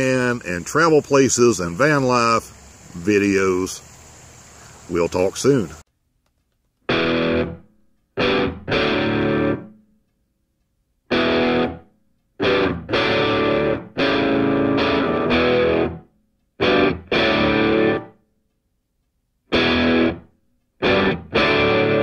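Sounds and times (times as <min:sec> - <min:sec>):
distorted electric guitar chords: 0:06.9 - 0:09.8, 0:11.1 - 0:18.2, 0:19.5 - 0:22.0.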